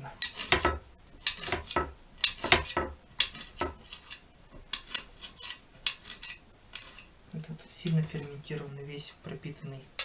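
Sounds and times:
knife chopping on cutting board: 0.3 - 3.8.

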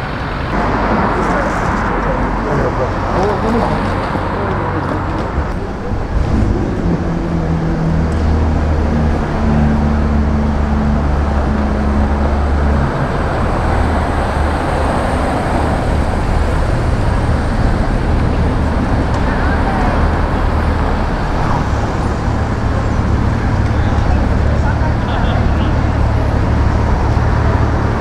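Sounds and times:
passing vehicles: 0.0 - 28.0
vehicle engine hum: 0.0 - 28.0.

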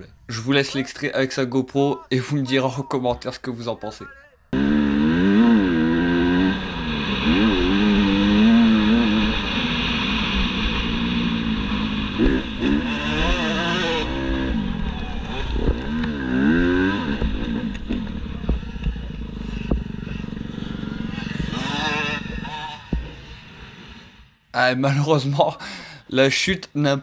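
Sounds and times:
motocross bike engine revving: 4.5 - 24.2.

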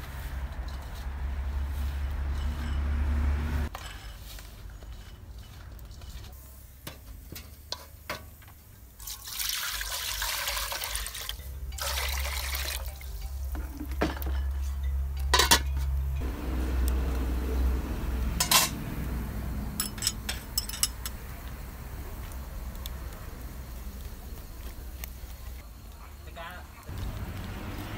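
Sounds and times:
water pouring into metal pot: 9.0 - 14.2
metal clinking against pot: 11.3 - 16.0, 19.8 - 21.2.

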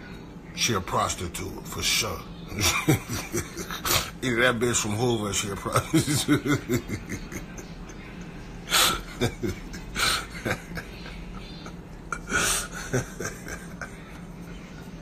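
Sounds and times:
man laughing: 2.5 - 4.2, 5.3 - 15.0.

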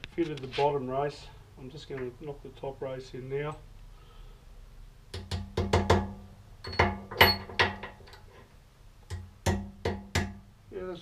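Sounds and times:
hammer knocking on metal: 5.2 - 7.9, 9.1 - 10.4.

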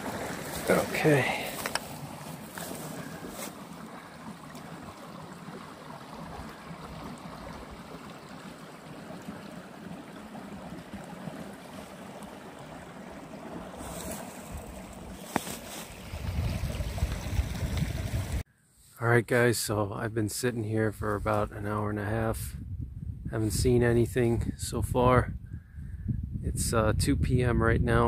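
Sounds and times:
creek babbling over rocks: 0.0 - 18.4
low rumble on microphone: 16.0 - 18.4, 22.4 - 28.0.

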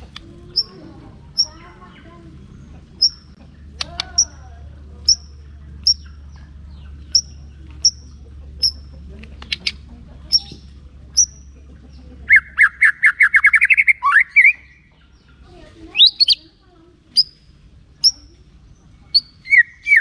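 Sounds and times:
bird trilling: 0.0 - 20.0
bird call notes: 12.3 - 15.1, 19.1 - 20.0.

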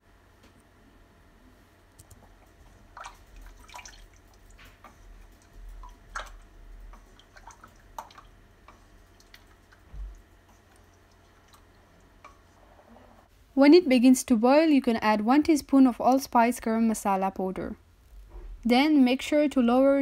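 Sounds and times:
liquid slopping in pot: 2.2 - 13.1.

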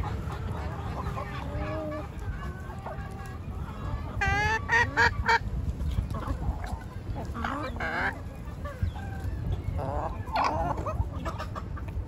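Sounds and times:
loud nasal chicken calls: 0.0 - 5.5, 6.2 - 11.8
chickens clucking softly: 0.0 - 12.0.

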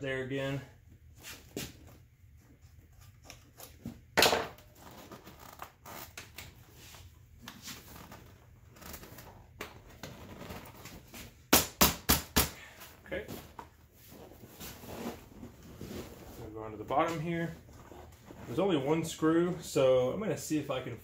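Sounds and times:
seat cover rustling and scraping: 13.8 - 16.6.

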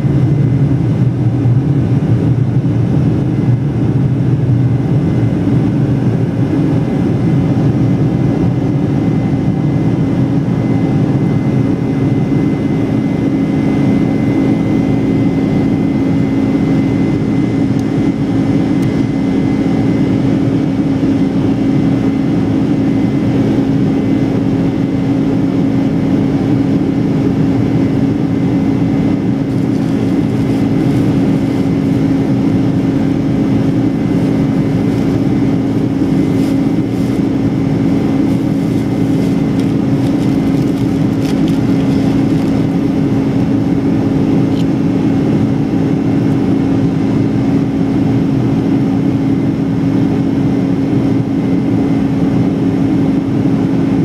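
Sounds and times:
jet engine drone: 0.0 - 54.0
rushing air: 28.6 - 43.5.

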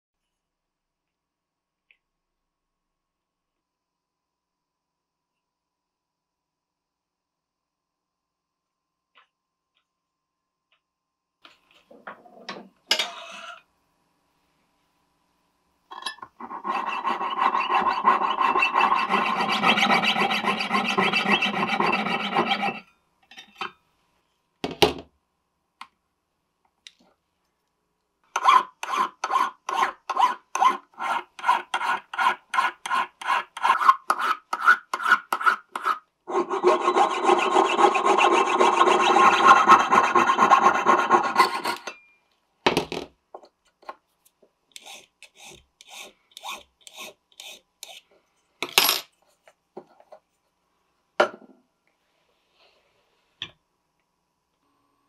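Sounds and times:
hand tool rasping strokes: 16.4 - 22.9, 28.4 - 41.9, 44.8 - 48.0.

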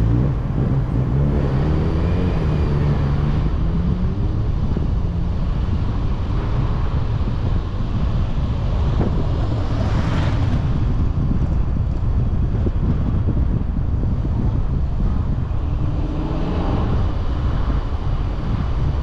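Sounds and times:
car road and engine rumble: 0.0 - 19.0
wind buffeting microphone: 0.0 - 19.0.

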